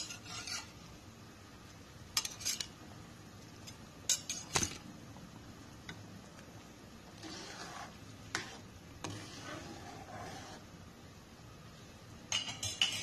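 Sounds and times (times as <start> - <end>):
metal spoon clinking on plate and wok: 4.1 - 4.6, 12.3 - 13.0.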